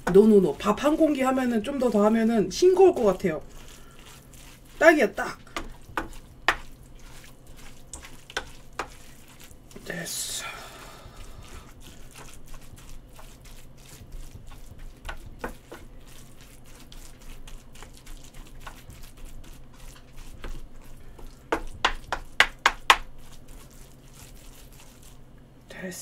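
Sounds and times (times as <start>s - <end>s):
spoon scraping a pan: 0.0s - 9.9s, 11.2s - 25.2s
spoon knocking on pan: 21.2s - 23.1s.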